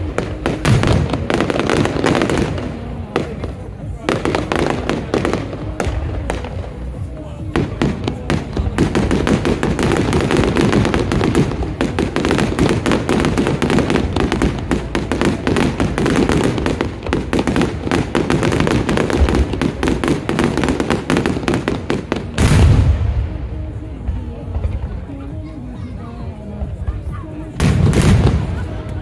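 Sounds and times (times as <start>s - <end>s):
fireworks bangs and crackles: 0.0s - 25.7s, 26.5s - 29.0s
heavy firework boom: 7.6s - 23.6s.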